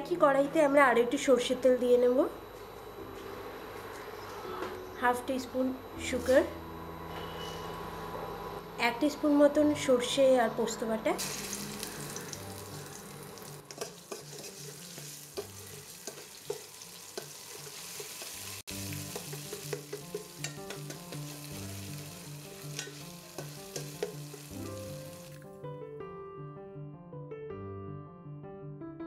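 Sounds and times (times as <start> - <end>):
paste sizzling in hot oil: 11.2 - 25.4
metal spatula scraping pan: 13.7 - 21.4, 22.4 - 24.5.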